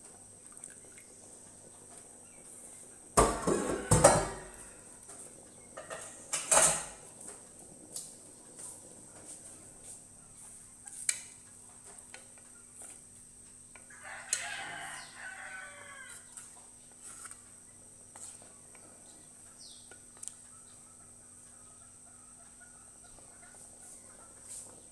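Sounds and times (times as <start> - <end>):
rooster crowing: 3.3 - 4.9, 13.9 - 16.3
wooden spatulas stirring pot: 8.6 - 20.5.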